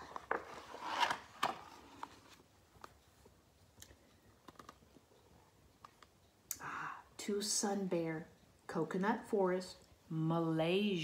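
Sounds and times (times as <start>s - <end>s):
book page turning: 0.0s - 2.4s.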